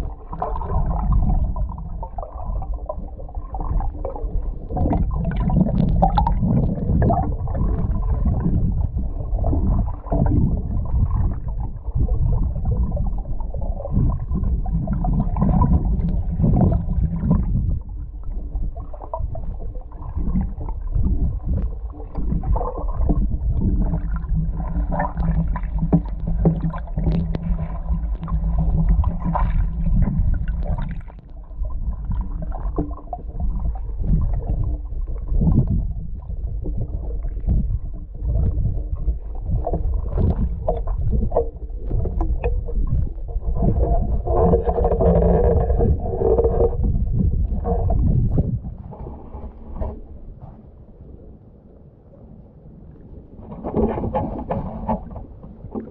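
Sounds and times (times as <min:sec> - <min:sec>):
low underwater knocks: 0:00.0 - 0:50.4
muffled underwater sloshing and gurgling: 0:00.0 - 0:55.9.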